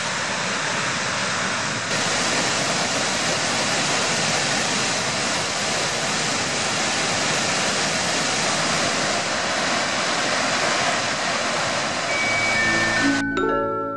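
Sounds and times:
water rushing down spillway: 0:00.0 - 0:13.2
music with mallet percussion: 0:12.1 - 0:13.9.

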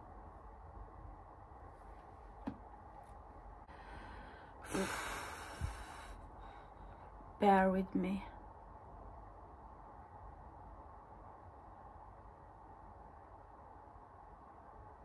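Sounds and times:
woman sighing: 0:03.8 - 0:06.2.

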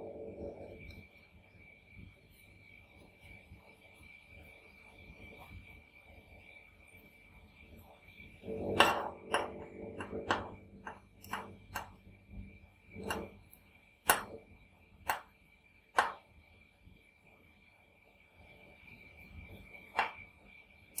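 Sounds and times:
spatula tapping metal plate: 0:08.5 - 0:12.0, 0:13.0 - 0:13.3, 0:14.0 - 0:14.4, 0:15.1 - 0:15.3, 0:16.0 - 0:16.2.

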